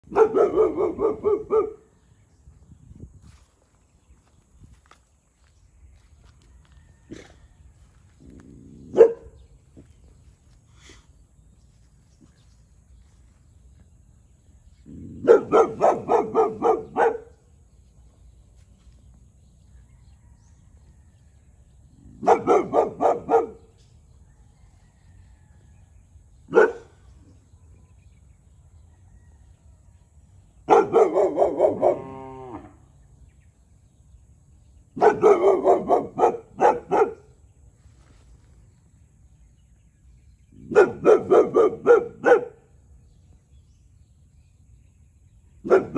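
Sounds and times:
dog barking: 0.0 - 1.9, 8.8 - 9.4, 14.9 - 17.4, 22.1 - 23.8, 26.5 - 27.1, 30.6 - 32.2, 35.0 - 37.4, 40.6 - 42.7, 45.6 - 45.9.

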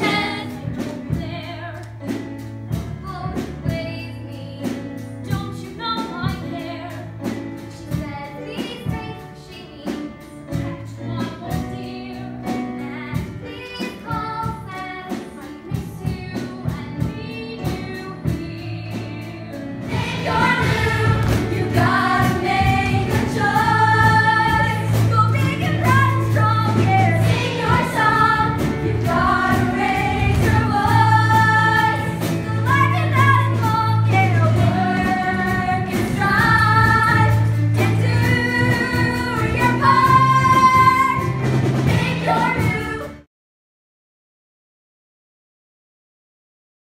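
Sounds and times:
group of young voices singing: 0.0 - 0.6, 19.9 - 41.3, 41.9 - 43.1
up-tempo music with strong bass: 17.3 - 43.2.

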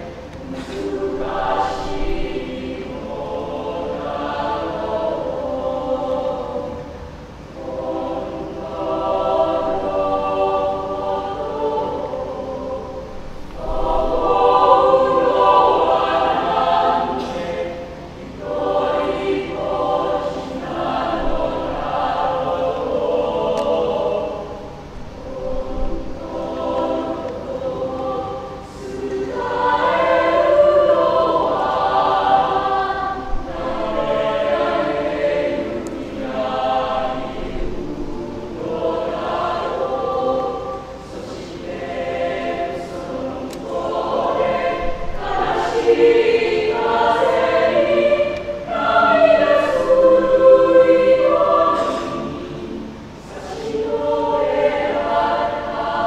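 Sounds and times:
choir singing: 0.0 - 56.0.

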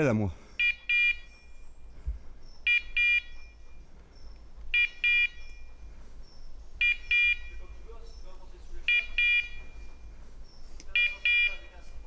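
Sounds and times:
high electronic beeps: 4.8 - 5.8, 6.8 - 7.8, 8.9 - 10.0, 11.0 - 11.8.

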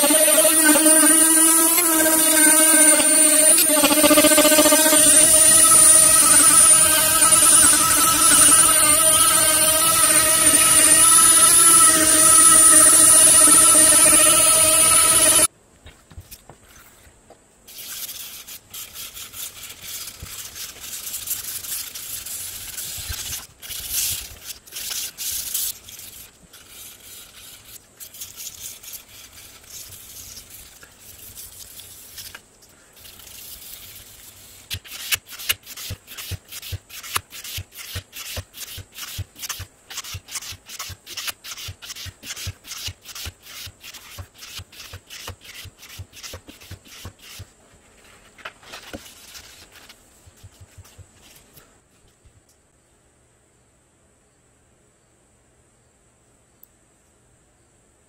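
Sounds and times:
sanding metal blade with abrasive paper: 0.0 - 15.5, 17.7 - 32.4, 33.0 - 47.5.

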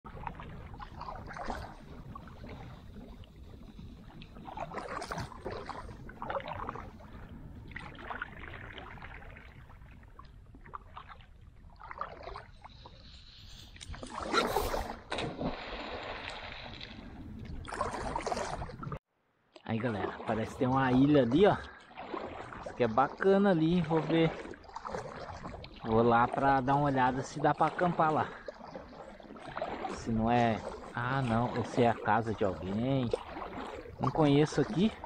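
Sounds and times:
paddle strokes splashing: 0.1 - 19.0, 19.8 - 35.0
loud splash and rush of water: 14.1 - 18.8, 32.6 - 35.0.

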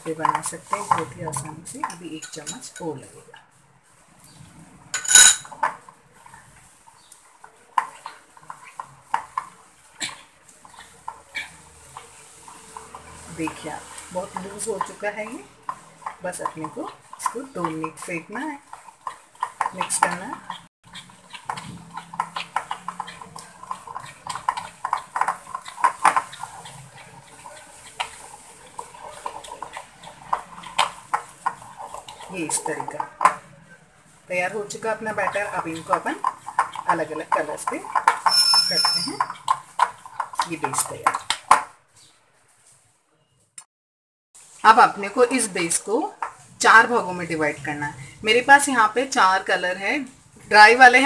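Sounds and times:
spoon stirring thick paste: 0.0 - 4.4, 5.0 - 42.0
spoon clinking against glass bowl: 2.2 - 2.8, 5.0 - 5.5.

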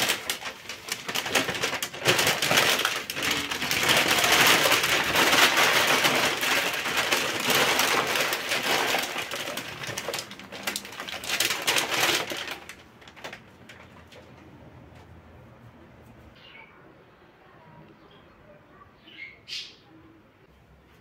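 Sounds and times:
paper crumpling and rustling: 0.0 - 14.4.

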